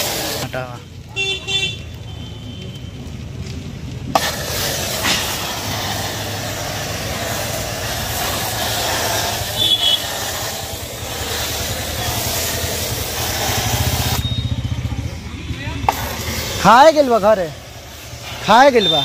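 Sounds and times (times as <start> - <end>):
pressure washer spraying: 0.0 - 0.7, 4.1 - 19.0
pressure washer click: 4.2 - 5.9, 15.8 - 16.6.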